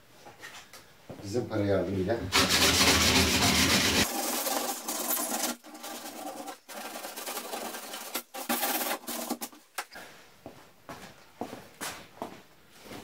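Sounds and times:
sandpaper rubbing on sheet metal: 2.3 - 9.6.

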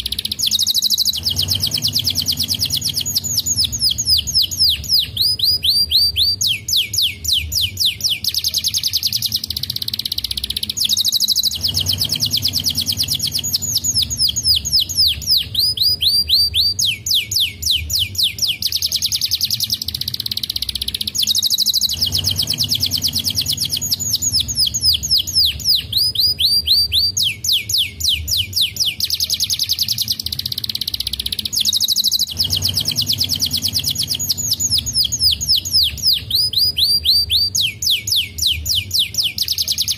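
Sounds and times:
canary singing trills: 0.0 - 39.9.

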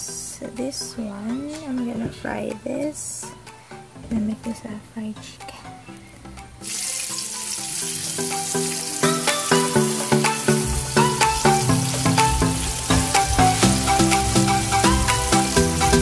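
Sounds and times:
background music with a beat: 3.3 - 16.0
chicken deep-frying in oil: 6.6 - 16.0.

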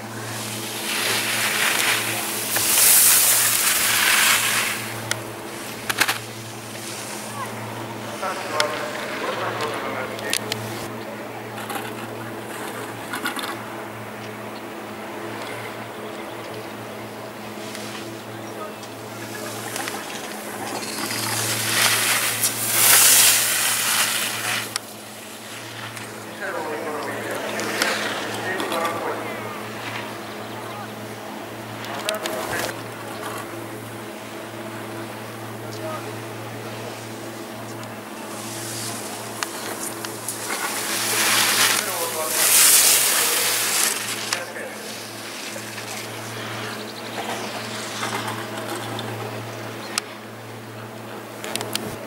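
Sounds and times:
skis scraping on snow: 0.0 - 10.9, 17.4 - 33.6, 35.7 - 49.3.

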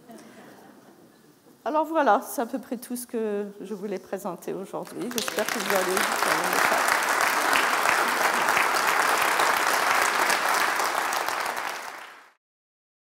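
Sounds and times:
audience applauding: 4.8 - 12.4.

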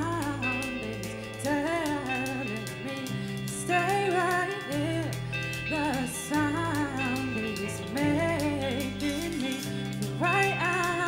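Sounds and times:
woman singing: 0.0 - 11.0.

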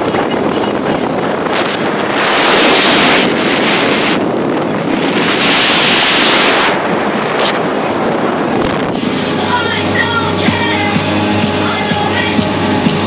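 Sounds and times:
water rushing past boat hull: 0.0 - 13.0
wind buffeting microphone: 0.0 - 13.0.

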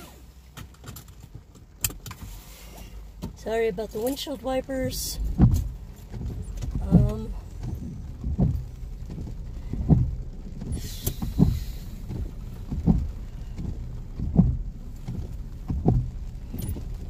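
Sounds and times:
moving car rumble: 0.0 - 17.0
windshield wipers sweeping: 0.0 - 17.0
brief hiss: 10.8 - 12.1.

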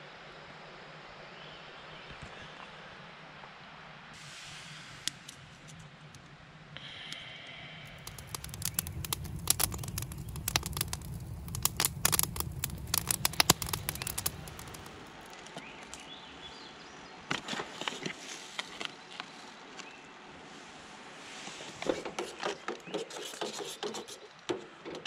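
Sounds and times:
campfire crackling and popping: 7.8 - 16.0
light taps and scrapes: 21.6 - 25.0.

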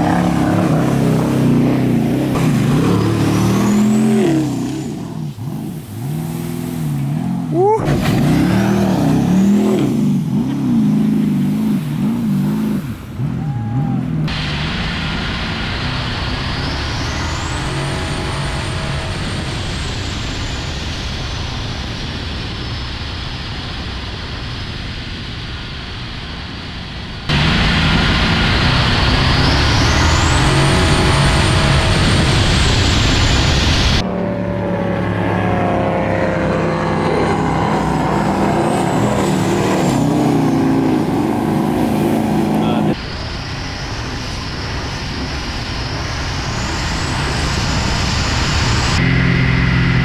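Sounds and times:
high turbo whine: 0.0 - 50.0
jet boat engine running hard: 0.0 - 50.0.

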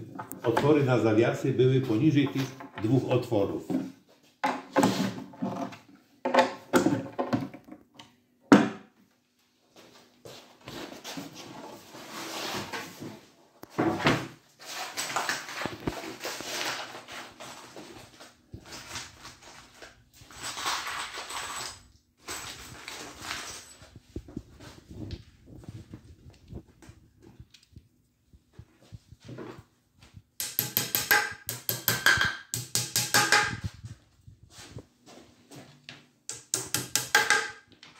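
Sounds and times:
sharp wooden knock: 30.4 - 33.7, 36.3 - 37.6.

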